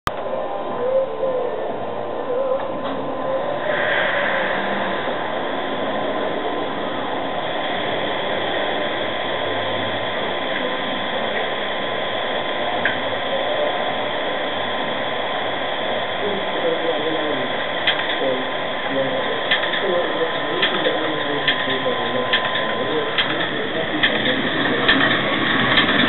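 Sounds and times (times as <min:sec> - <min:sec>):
microphone hiss: 0:00.1 - 0:26.0
thin whistle-like tone: 0:00.3 - 0:09.9.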